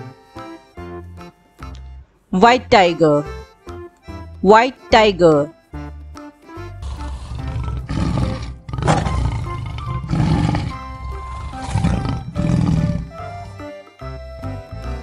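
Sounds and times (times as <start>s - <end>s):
light background music: 0.0s - 15.0s
tiger roaring and growling: 6.8s - 13.3s.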